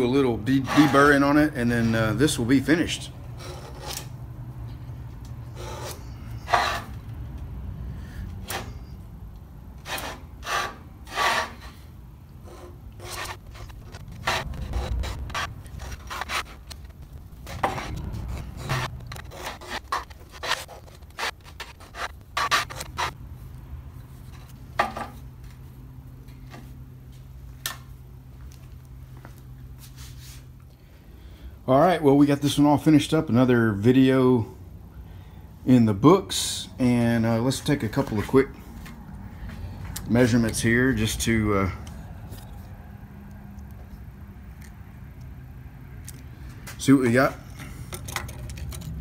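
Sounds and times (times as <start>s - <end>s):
blade scraping steel: 0.5s - 1.4s, 3.4s - 4.1s, 5.5s - 7.0s, 9.8s - 23.2s.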